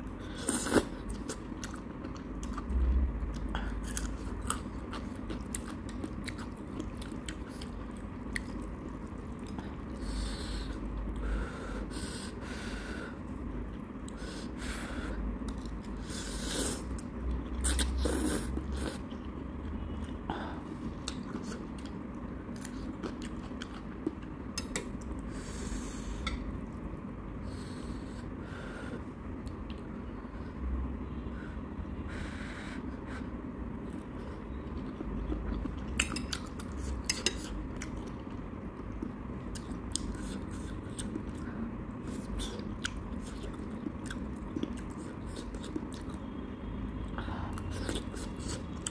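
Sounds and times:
chewing noodles: 0.2 - 10.8, 33.8 - 46.4.

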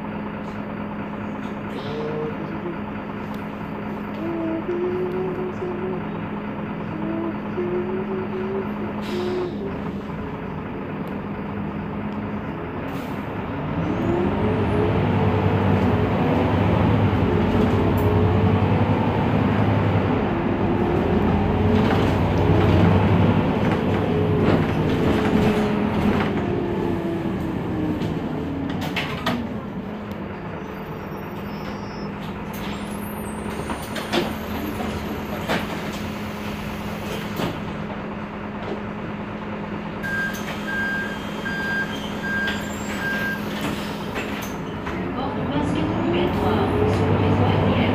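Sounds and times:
bus engine: 0.0 - 47.9
electronic beep: 40.0 - 43.4.

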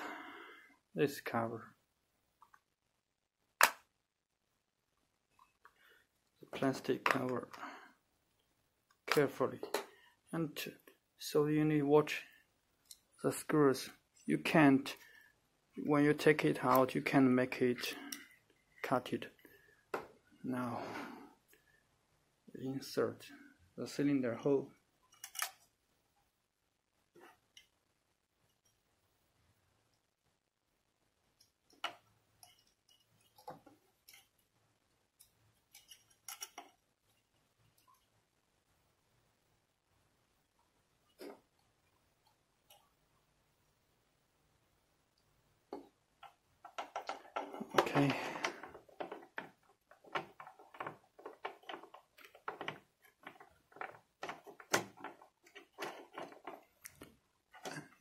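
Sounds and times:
metal lock parts clicking: 25.1 - 25.6, 35.7 - 36.8, 46.2 - 57.0.

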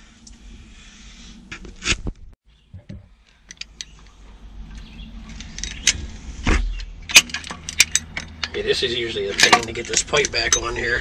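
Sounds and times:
metal clicks and knocks: 2.8 - 10.9.

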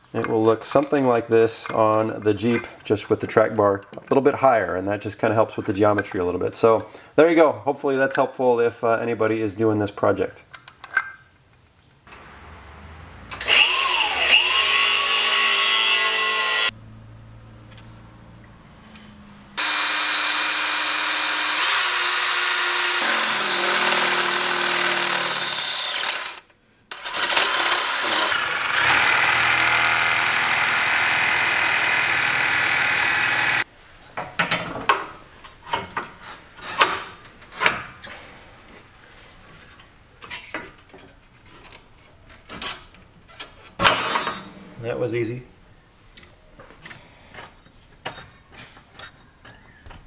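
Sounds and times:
cordless drill whining: 13.3 - 16.7, 19.6 - 33.6.

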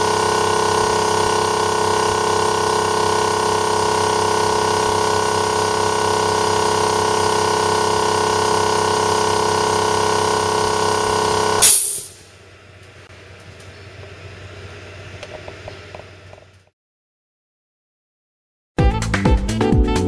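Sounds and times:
air compressor whining: 0.0 - 16.7
hiss of released air: 11.6 - 12.2.

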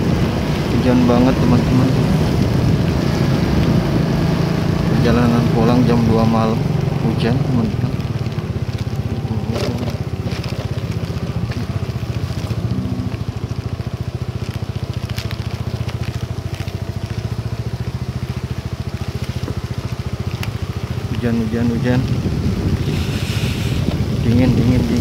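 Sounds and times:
motorcycle engine running: 0.0 - 25.0
rain and wind on microphone: 0.0 - 25.0.

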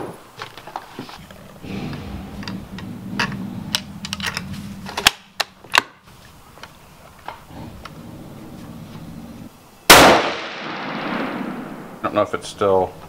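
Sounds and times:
rifle shot echoing: 9.9 - 12.0.

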